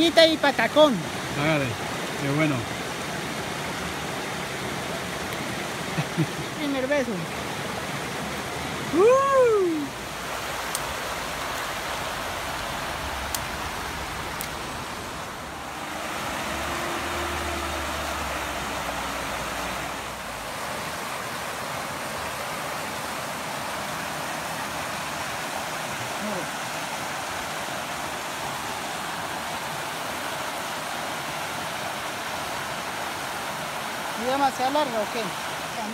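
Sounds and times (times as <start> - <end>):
stream running over rocks: 0.0 - 35.9
person calling out: 8.9 - 10.0.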